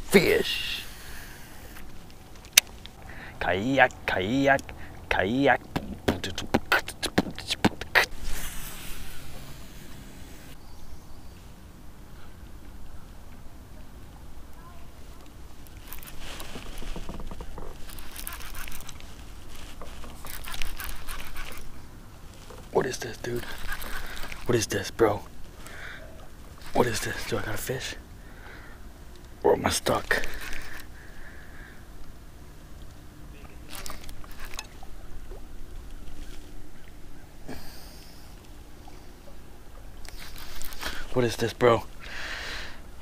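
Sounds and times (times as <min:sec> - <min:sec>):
rubbing handling noise: 0:05.6 - 0:10.6, 0:14.9 - 0:25.7, 0:33.6 - 0:34.9, 0:40.0 - 0:41.5
brief hiss: 0:08.1 - 0:10.6
water and wind rumble: 0:11.6 - 0:27.4.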